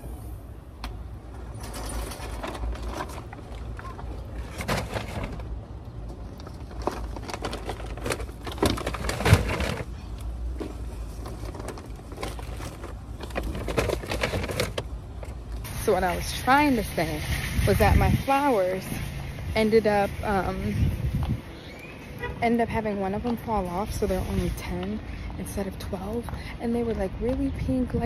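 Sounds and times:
shopping cart rattling on pavement: 1.4 - 5.6, 6.2 - 21.1
paper bags rustling: 1.5 - 16.4.

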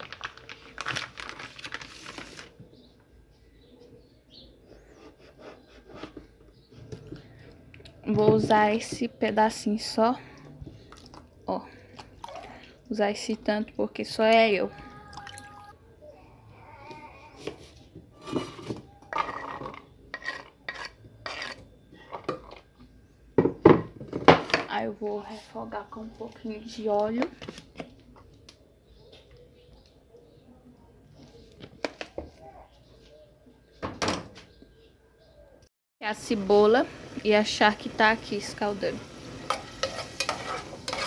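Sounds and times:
plastic packaging crinkling: 0.0 - 2.6
faint bird chirps: 28.2 - 31.5, 32.4 - 35.7.

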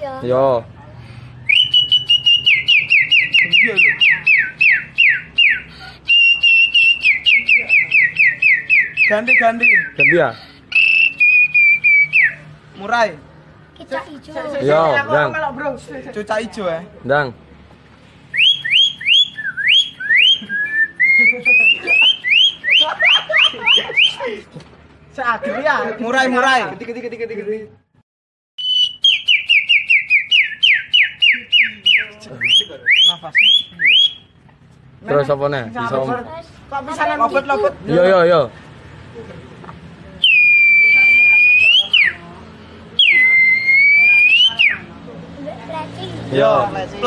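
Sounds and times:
boy whistling bird call: 1.4 - 12.5, 18.3 - 24.2, 28.6 - 34.3, 40.2 - 42.2, 43.0 - 44.9.

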